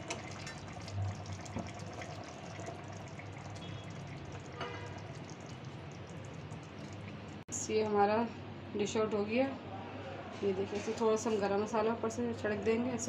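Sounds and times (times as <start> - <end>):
running water: 0.0 - 7.4.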